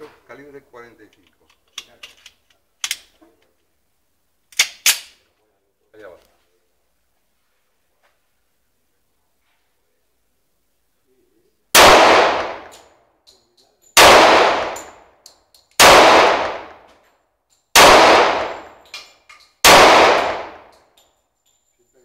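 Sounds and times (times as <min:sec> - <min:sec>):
pistol shots with echo: 0:11.8 - 0:12.9, 0:14.0 - 0:15.1, 0:15.8 - 0:16.9, 0:17.8 - 0:19.0, 0:19.6 - 0:20.8.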